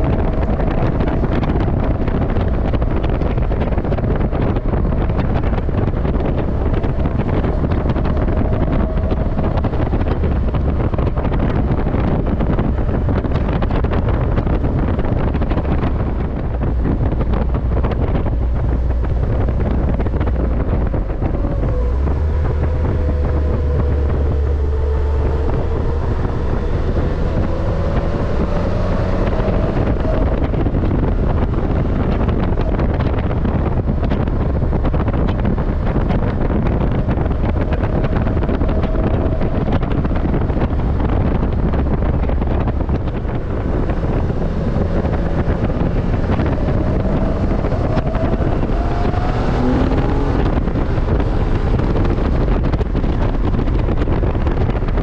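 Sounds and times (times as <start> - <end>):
car engine running: 0.0 - 55.0
wind rush: 0.0 - 55.0.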